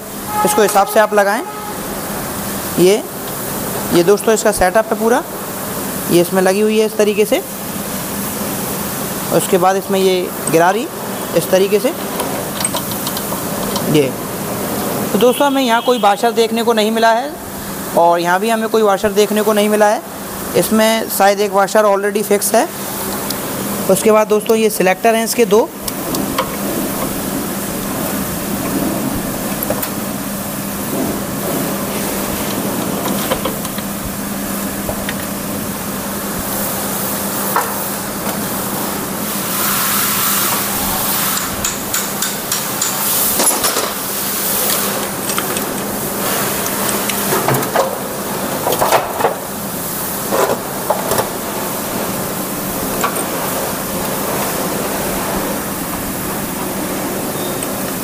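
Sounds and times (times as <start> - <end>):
metal engine parts clinking: 12.1 - 13.9, 44.6 - 47.3.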